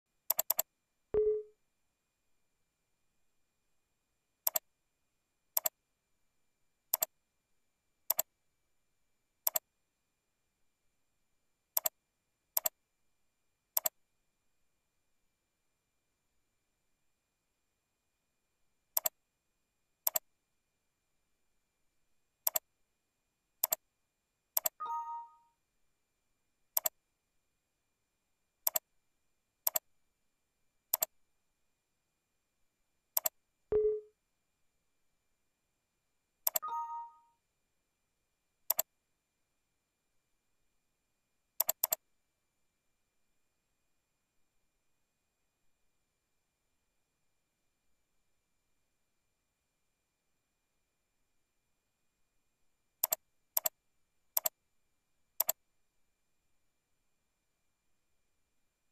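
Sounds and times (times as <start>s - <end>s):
computer mouse button clicks: 0.3s - 0.6s, 1.2s - 1.5s, 33.2s - 34.1s, 36.5s - 37.1s, 41.6s - 42.0s, 53.0s - 53.7s, 55.4s - 55.6s.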